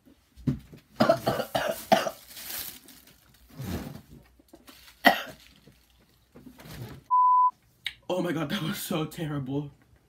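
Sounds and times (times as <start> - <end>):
person coughing: 1.0 - 2.3, 5.0 - 5.4.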